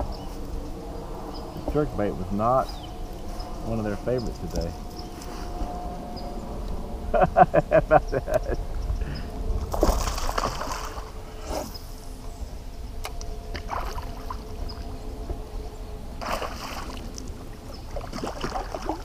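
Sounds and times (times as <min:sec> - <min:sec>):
fish splashing and thrashing: 0:09.6 - 0:11.8, 0:13.5 - 0:14.7, 0:16.2 - 0:19.0.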